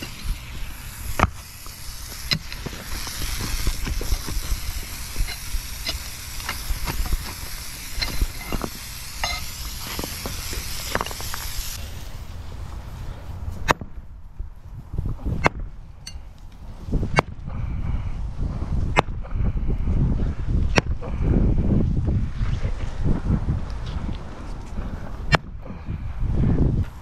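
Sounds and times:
steel scraper on concrete: 0:00.0 - 0:11.8
steady hiss: 0:00.0 - 0:13.7
concrete chunks clinking: 0:02.0 - 0:11.4.

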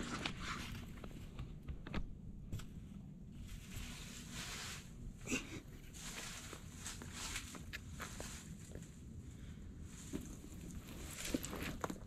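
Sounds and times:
scrape on rock: 0:03.6 - 0:05.0, 0:05.8 - 0:08.8
footsteps on rock and dry leaves: 0:05.8 - 0:09.0, 0:09.8 - 0:12.0.

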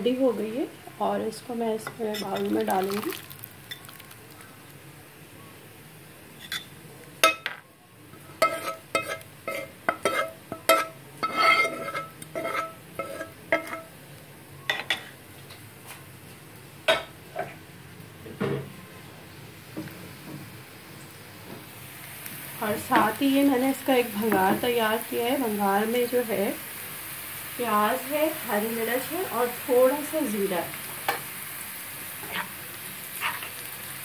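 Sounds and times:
spoon clinking against pan and bowl: 0:01.8 - 0:02.6, 0:08.4 - 0:13.8.

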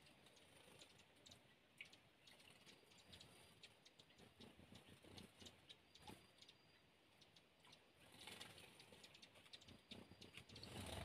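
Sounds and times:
light ticks and drips: 0:00.0 - 0:11.0
stream trickling over rocks: 0:00.0 - 0:11.0.

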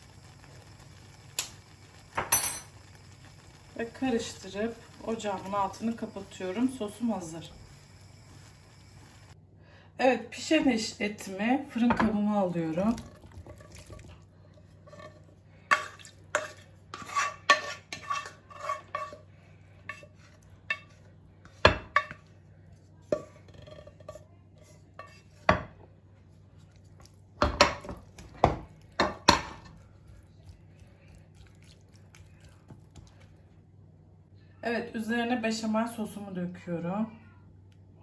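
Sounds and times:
wooden spoon scraping a pot: 0:12.8 - 0:25.8.

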